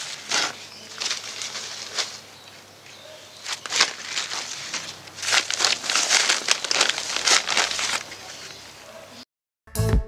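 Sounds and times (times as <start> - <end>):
soil rustling and crunching: 0.0 - 8.6.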